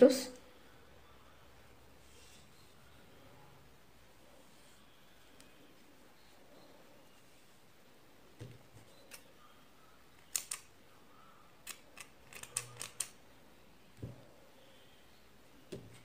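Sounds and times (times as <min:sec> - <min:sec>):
soft handling thumps: 0:14.0 - 0:14.3.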